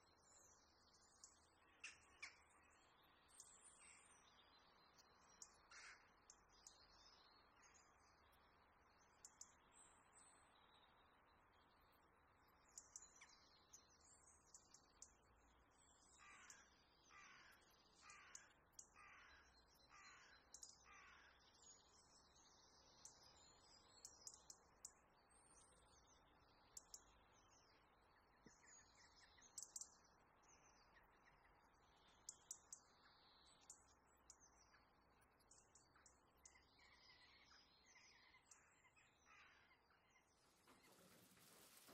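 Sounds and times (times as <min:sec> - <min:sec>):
faint birdsong chirps: 0:00.0 - 0:41.9.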